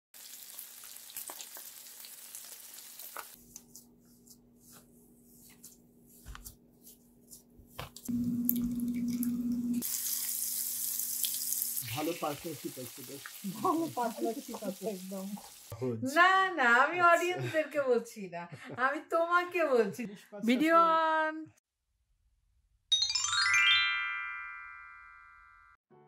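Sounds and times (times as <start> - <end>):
fish frying in hot oil: 0.2 - 3.4, 8.1 - 15.7
steady hum: 8.1 - 9.8.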